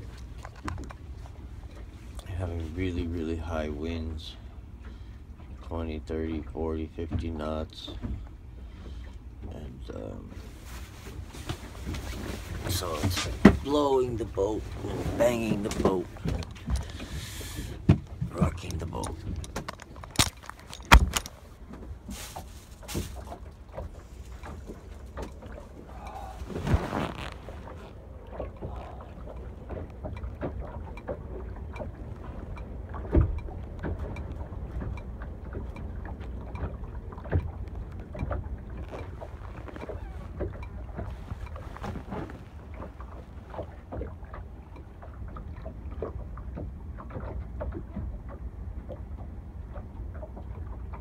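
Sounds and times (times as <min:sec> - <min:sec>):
boat hull knocks and creaks: 0:00.0 - 0:04.3, 0:05.4 - 0:51.0
water sloshing: 0:00.0 - 0:51.0
wind rumbling: 0:11.1 - 0:45.4
clunk with rustle: 0:17.8 - 0:25.7.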